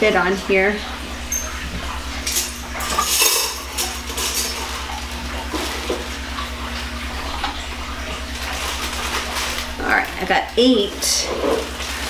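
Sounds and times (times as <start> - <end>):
plastic bag crinkling: 8.0 - 12.0.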